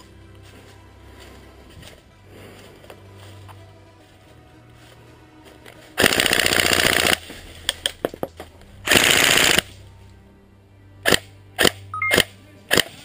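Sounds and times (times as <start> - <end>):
airsoft gun firing bursts: 6.0 - 7.3, 8.9 - 9.6.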